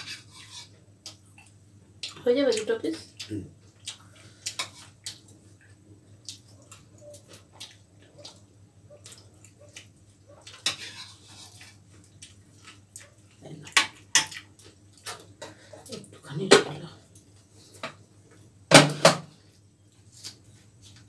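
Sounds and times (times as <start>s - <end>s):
wet chewing: 1.0s - 13.4s.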